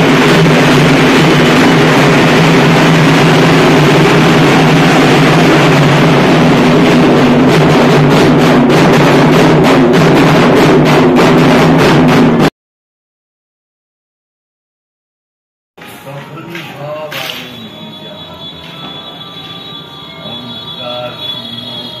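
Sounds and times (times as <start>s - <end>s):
barrel drums beaten with sticks: 0.0s - 12.5s.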